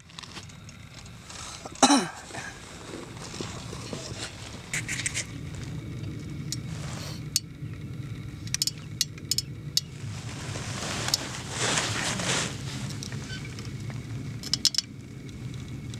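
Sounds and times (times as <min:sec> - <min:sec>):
low rumble: 0:00.0 - 0:15.9
light clicks and clinks: 0:08.4 - 0:09.9, 0:12.8 - 0:15.9
rustling: 0:09.9 - 0:14.4.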